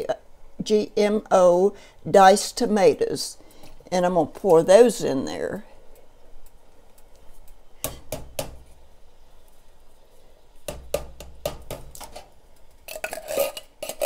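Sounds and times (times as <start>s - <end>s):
spoon scraping inside can: 12.0s - 14.0s.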